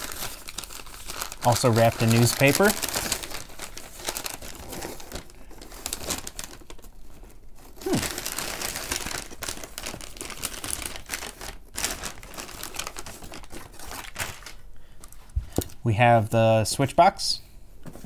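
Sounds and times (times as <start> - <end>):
newspaper rustling and crinkling: 0.0 - 15.2.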